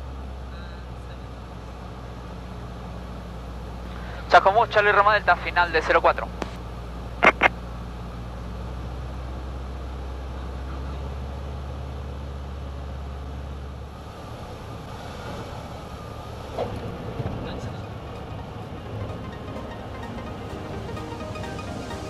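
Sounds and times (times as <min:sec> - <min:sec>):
airplane engine droning: 0:02.9 - 0:08.5, 0:13.9 - 0:22.0.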